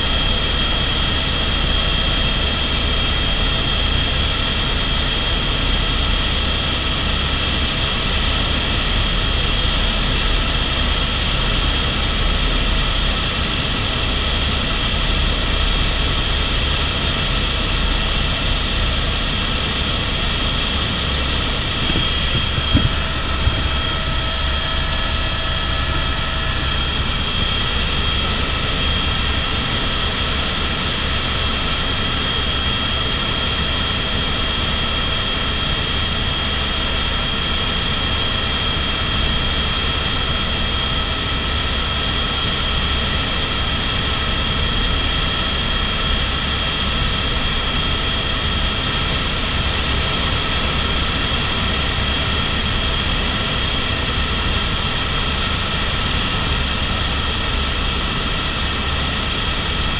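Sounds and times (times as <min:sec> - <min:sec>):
helicopter turbine whine: 0:00.0 - 0:59.9
rotor and engine rumble: 0:18.7 - 0:29.9.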